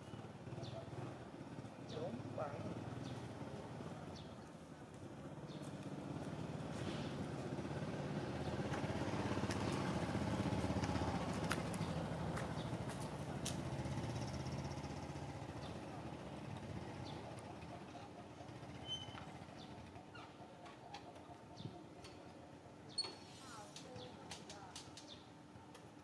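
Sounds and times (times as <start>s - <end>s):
vehicle engine passing by: 5.2s - 19.9s.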